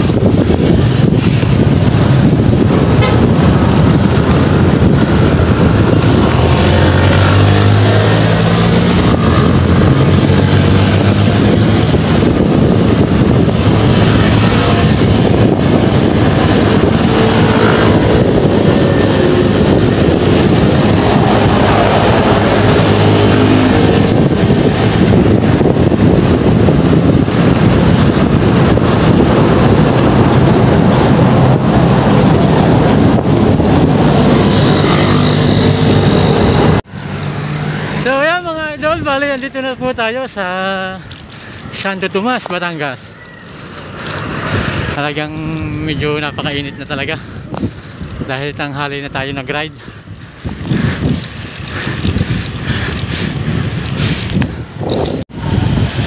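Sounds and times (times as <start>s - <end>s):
motor vehicle passing: 0.0s - 38.4s, 43.0s - 45.9s
wind rush on microphone: 0.0s - 56.0s.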